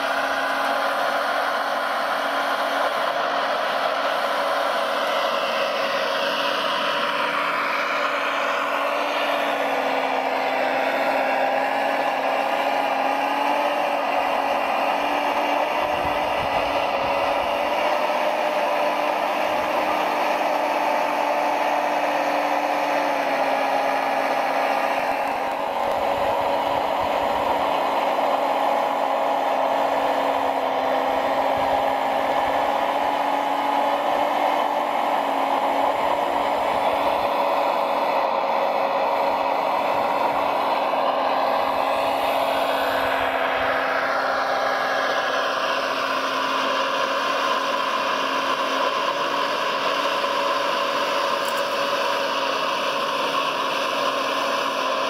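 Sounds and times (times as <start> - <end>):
model vehicle engine drone: 0.0 - 55.0.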